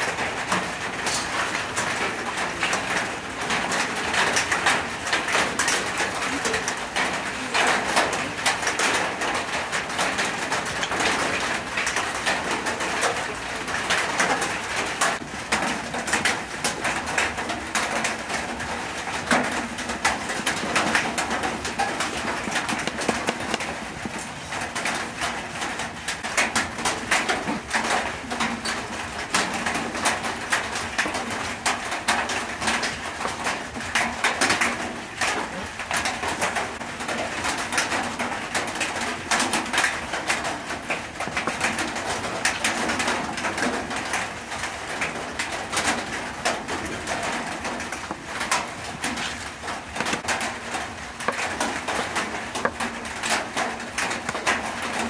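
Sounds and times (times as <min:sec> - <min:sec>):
knife tapping cutting board: 0:22.5 - 0:24.2.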